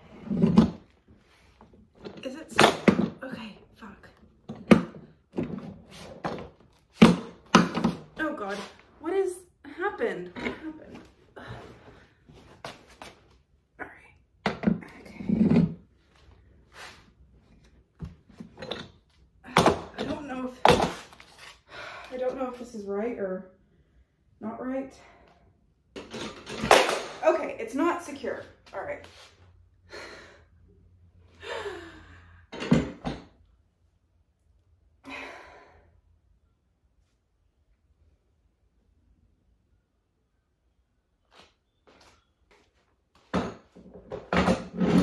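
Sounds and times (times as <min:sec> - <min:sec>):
woman sighing: 0:31.4 - 0:32.4, 0:35.0 - 0:36.0.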